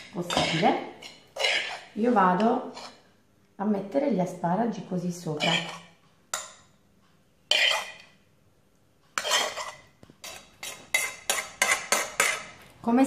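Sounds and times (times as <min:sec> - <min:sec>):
metal spoon scraping steel bowl: 0:00.0 - 0:03.1, 0:05.3 - 0:06.6, 0:07.5 - 0:08.2, 0:09.2 - 0:12.6.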